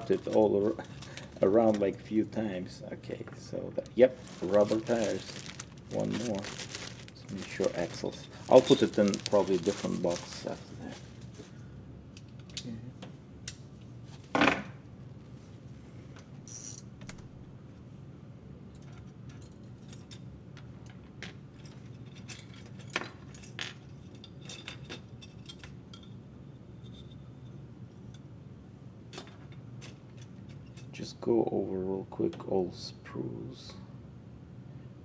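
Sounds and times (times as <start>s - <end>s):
plastic parts clicking and rattling: 4.2s - 11.1s.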